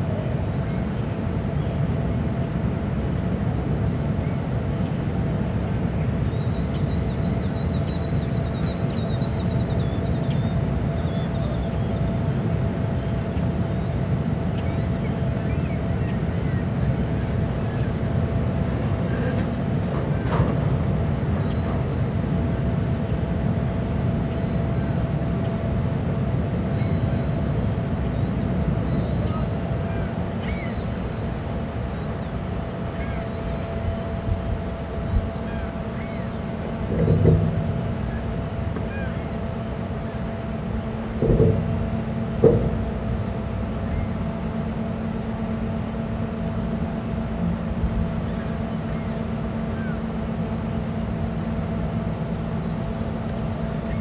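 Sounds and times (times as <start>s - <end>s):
ship machinery rumbling: 0.0s - 54.0s
faint bird chirps: 26.6s - 39.4s.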